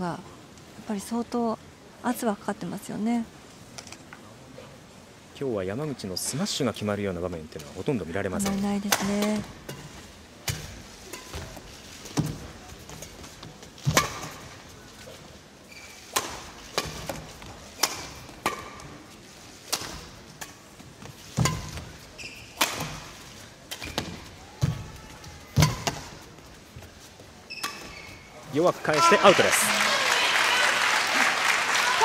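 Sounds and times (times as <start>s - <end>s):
short high squeaks: 22.2s - 22.6s, 27.5s - 28.4s.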